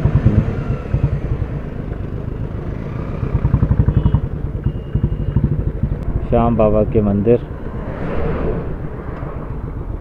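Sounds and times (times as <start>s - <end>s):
single-cylinder motorcycle engine thumping: 0.0s - 2.1s, 3.2s - 6.0s.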